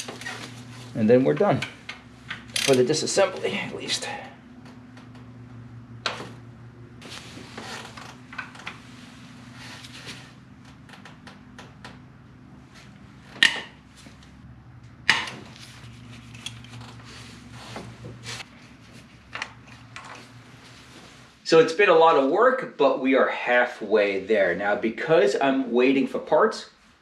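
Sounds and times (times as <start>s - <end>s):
ratchet clicking: 1.9s - 2.9s.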